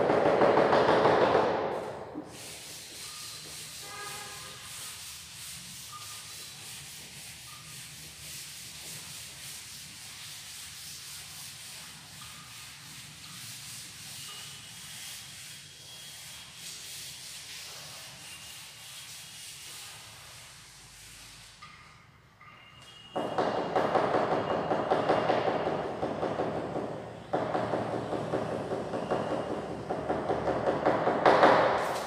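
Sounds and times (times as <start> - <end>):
duster rubbing on chalkboard: 1.8 - 21.6.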